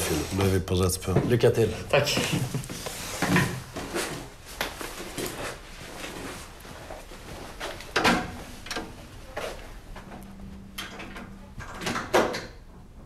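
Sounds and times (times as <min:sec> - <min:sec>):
footsteps: 0:00.0 - 0:08.6.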